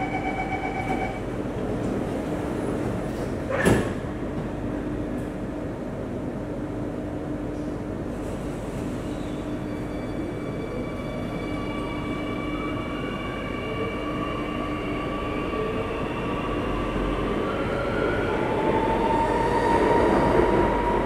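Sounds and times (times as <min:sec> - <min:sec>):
door-closing warning tone: 0:00.0 - 0:01.3
train doors shutting with a thud: 0:03.0 - 0:04.6.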